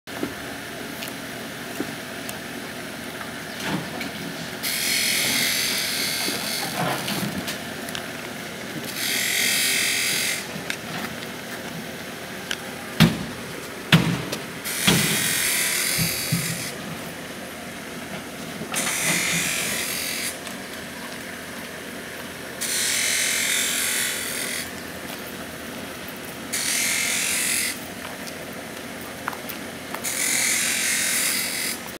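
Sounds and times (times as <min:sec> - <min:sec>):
power tool hissing: 0:04.6 - 0:07.1, 0:08.9 - 0:10.5, 0:14.6 - 0:16.8, 0:18.8 - 0:20.4
sharp knocks: 0:13.9 - 0:15.2.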